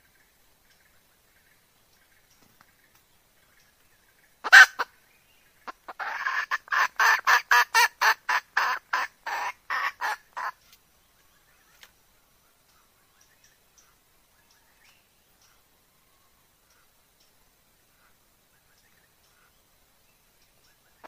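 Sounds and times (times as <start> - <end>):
hen clucking: 4.4 - 4.9, 5.6 - 10.6
hen squawk: 4.4 - 4.9, 5.9 - 10.6.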